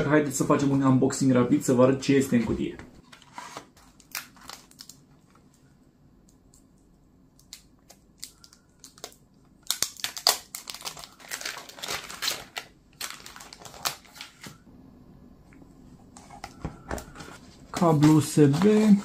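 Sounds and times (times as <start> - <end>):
plastic film crinkling: 3.0 - 5.4, 7.4 - 14.6, 17.6 - 19.0.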